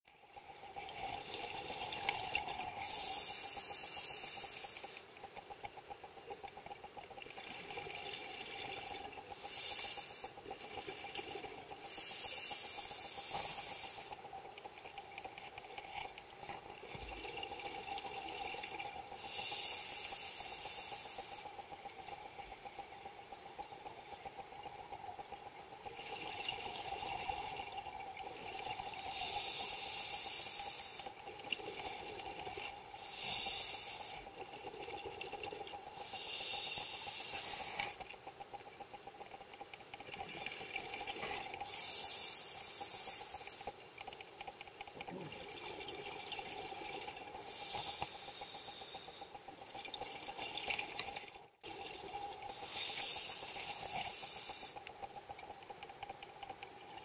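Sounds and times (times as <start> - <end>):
faint steady whine: 0.1 - 57.0
underwater regulator exhalation bubbling: 44.8 - 55.6.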